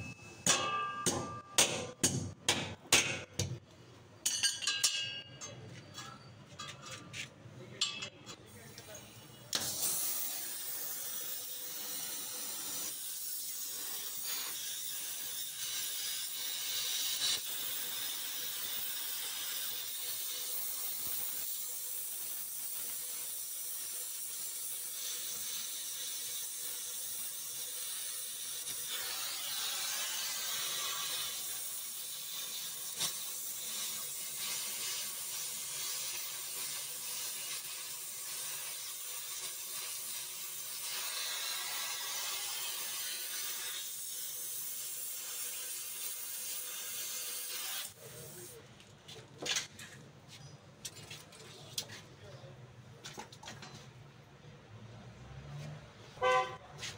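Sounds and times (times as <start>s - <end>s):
welding torch flame hissing: 8.5s - 48.6s.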